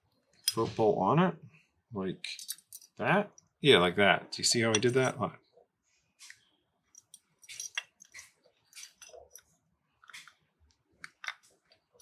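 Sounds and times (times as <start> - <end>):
small metal parts clicking: 2.4 - 3.0, 6.9 - 10.4.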